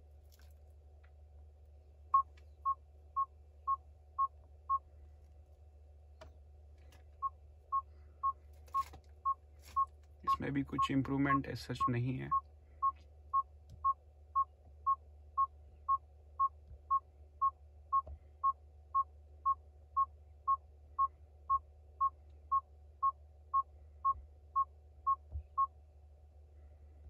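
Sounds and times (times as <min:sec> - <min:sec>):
low steady hum: 0:00.0 - 0:27.0
car warning beeper: 0:07.2 - 0:17.6, 0:18.4 - 0:25.7.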